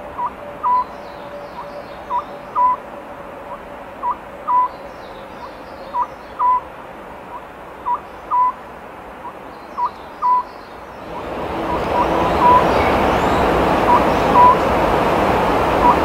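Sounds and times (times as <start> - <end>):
owl hooting: 0.1 - 2.8, 3.5 - 4.7, 5.4 - 6.6, 7.3 - 8.6, 9.2 - 10.5, 11.2 - 14.7, 15.8 - 16.0.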